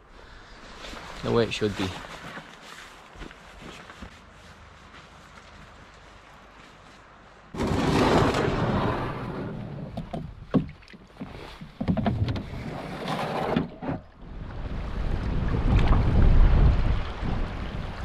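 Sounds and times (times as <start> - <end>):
water sloshing around canoe: 9.5 - 14.2
wind buffeting microphone: 14.2 - 18.0.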